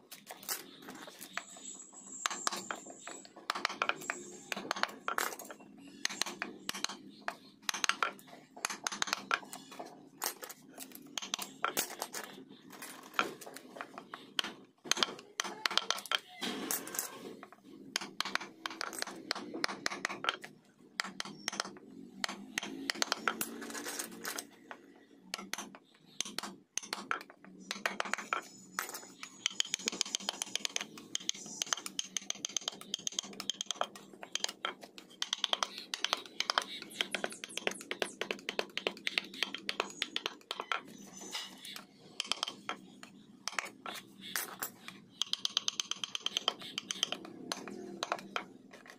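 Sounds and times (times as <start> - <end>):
chisel tapping wood: 3.5 - 5.0, 6.0 - 7.0, 7.6 - 9.4, 14.4 - 16.2, 18.0 - 20.4, 21.0 - 23.4, 25.3 - 28.5, 29.4 - 40.9, 42.2 - 44.0, 45.2 - 48.5.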